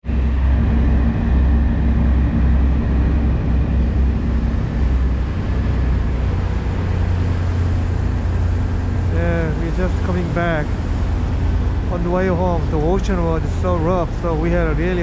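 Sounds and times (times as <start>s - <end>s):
boat engines droning: 0.0s - 15.0s
churning wake rushing: 0.0s - 15.0s
wind: 0.0s - 15.0s.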